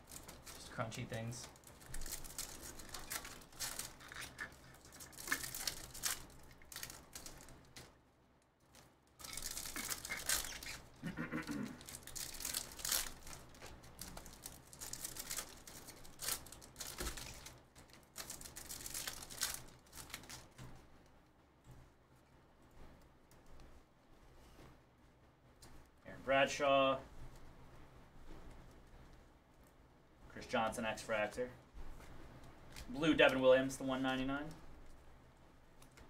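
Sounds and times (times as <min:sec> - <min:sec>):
cards rustling: 0:00.0 - 0:08.0, 0:08.6 - 0:20.8
foil wrappers crinkling and tearing: 0:00.0 - 0:08.0, 0:08.7 - 0:20.6.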